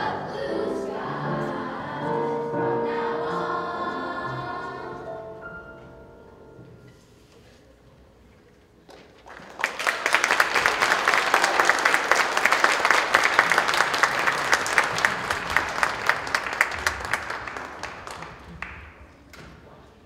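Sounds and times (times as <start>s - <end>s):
audience applauding: 9.2s - 19.0s.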